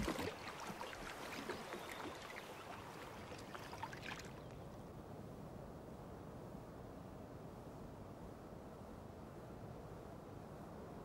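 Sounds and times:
water lapping against boat: 0.0s - 4.5s
small splashes: 0.0s - 4.6s.

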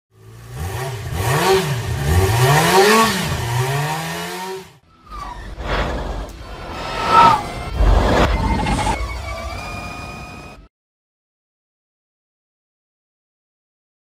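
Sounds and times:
engine revving: 0.1s - 10.6s
short noisy sound: 5.1s - 10.7s.

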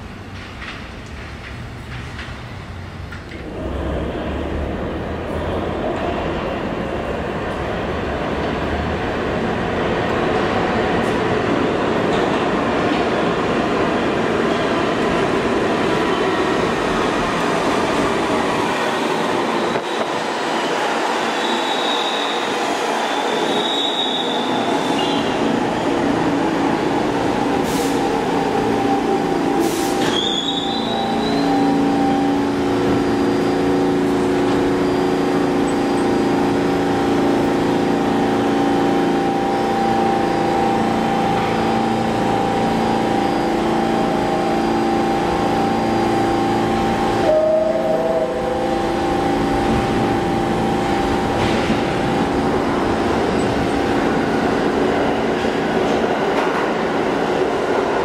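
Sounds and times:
subway train rumbling on rails: 0.0s - 58.0s
pitched multi-tone hum: 31.0s - 54.2s.

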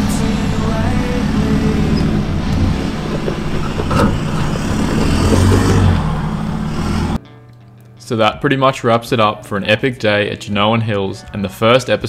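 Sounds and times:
engine working at low speed: 0.0s - 7.2s.

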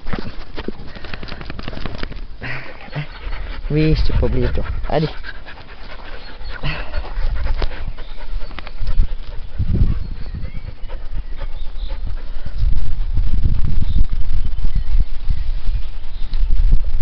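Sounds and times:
dogs panting: 0.0s - 13.2s.

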